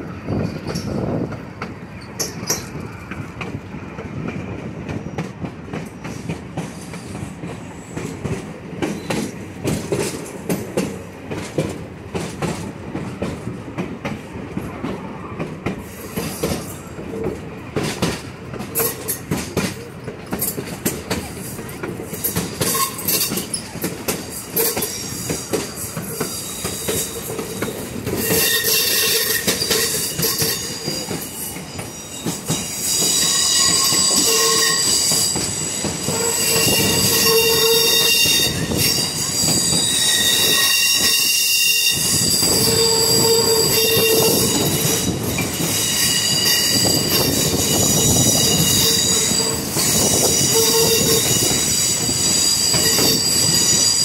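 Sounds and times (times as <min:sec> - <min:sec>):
wheels squealing against rails: 0:00.0 - 0:03.4, 0:04.2 - 0:10.6, 0:14.6 - 0:54.0
railroad cars rolling on track: 0:00.0 - 0:54.0.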